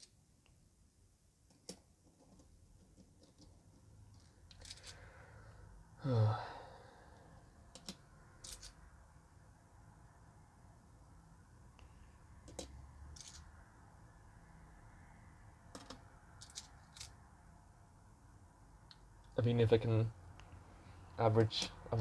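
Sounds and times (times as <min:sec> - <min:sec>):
coins clinking: 0:04.5 - 0:05.0, 0:07.8 - 0:08.8, 0:12.5 - 0:13.5, 0:15.8 - 0:17.2
person sighing: 0:06.0 - 0:07.3.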